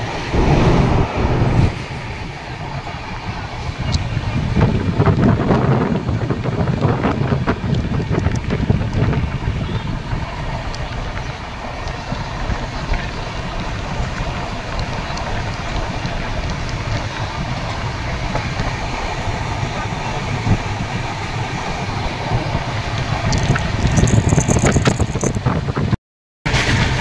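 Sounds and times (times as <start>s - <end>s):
rushing air: 0.0s - 5.1s
train wheels rumbling on rails: 0.0s - 25.9s.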